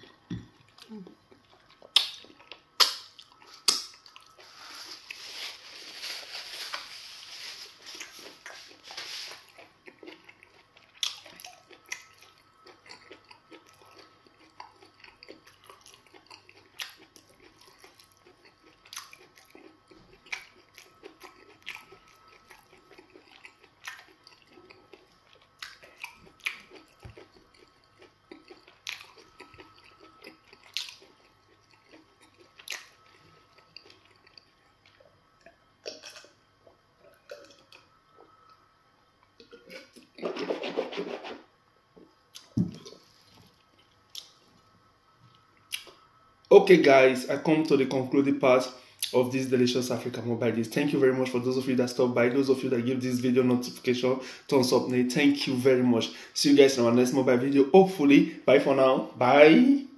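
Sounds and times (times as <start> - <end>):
person chewing food: 0.0 - 40.3, 42.3 - 44.6
wet mouth smacks: 1.9 - 2.2, 2.8 - 3.9
person gulping a drink: 37.0 - 37.8, 42.4 - 43.5.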